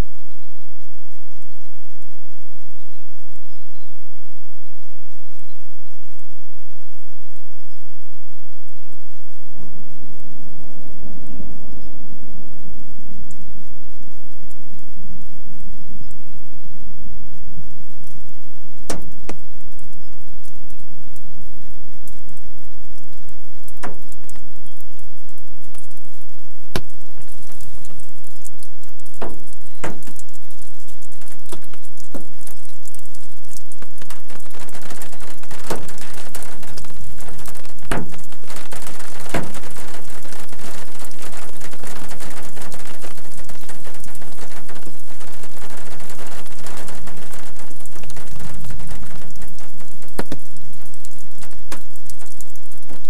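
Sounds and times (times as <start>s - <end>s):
rain on car windshield: 18.0s - 53.0s.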